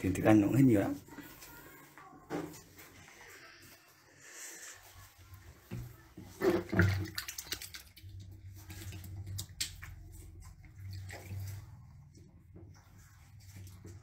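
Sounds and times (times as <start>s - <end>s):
water splashing on shells and tiles: 6.4s - 12.0s.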